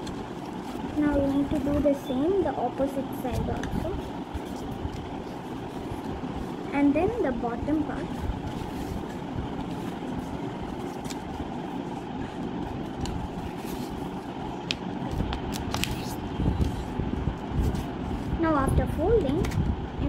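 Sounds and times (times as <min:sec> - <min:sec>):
paper crackling while folded: 0:00.0 - 0:18.4
low background rumble: 0:00.0 - 0:20.0.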